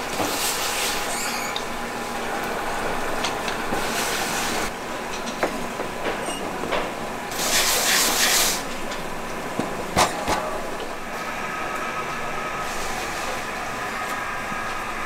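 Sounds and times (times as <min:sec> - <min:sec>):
conveyor machinery running: 0:00.0 - 0:15.0.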